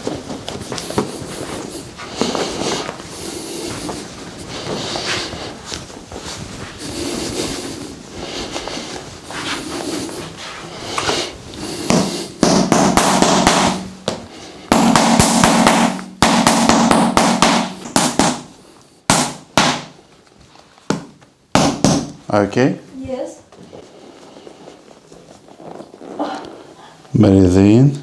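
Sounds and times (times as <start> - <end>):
soft rubbing: 0.0 - 12.4, 22.9 - 27.4
mallet tapping massage tool: 11.9 - 18.4.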